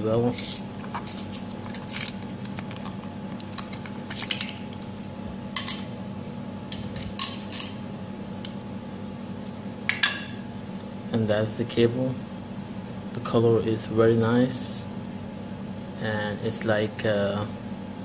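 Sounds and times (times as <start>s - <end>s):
steady background hum: 0.0s - 18.0s
plastic packaging clicks and crackles: 1.6s - 4.5s.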